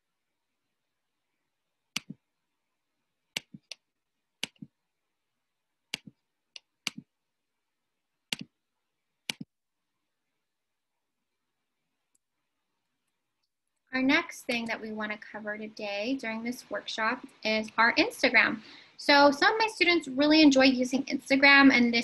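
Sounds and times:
computer mouse clicking: 1.9 - 2.2, 3.3 - 3.8, 4.4 - 4.7, 5.9 - 7.1, 8.3 - 8.5, 9.3 - 9.5.

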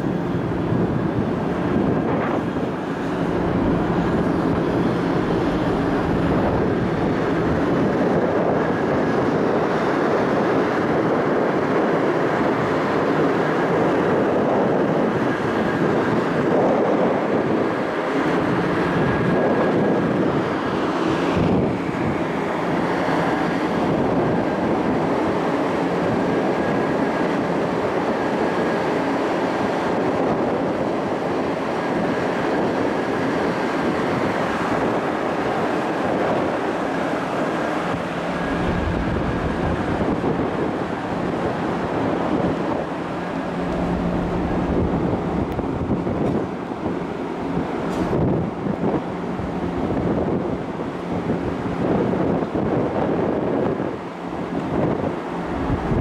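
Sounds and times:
ship machinery: 0.0 - 56.0
wind rushing: 0.6 - 9.7, 34.1 - 47.2
faint constant hum: 31.4 - 52.8.

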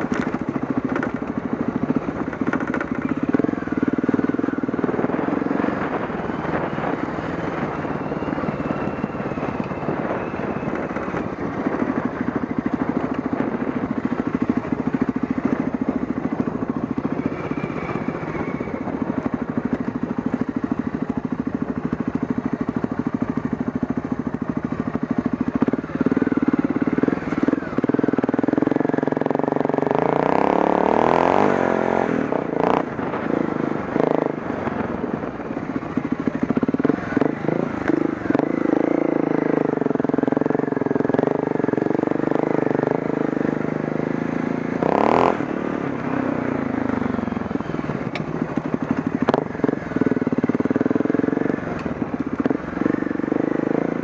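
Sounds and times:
dirt bike engine: 0.0 - 54.0.

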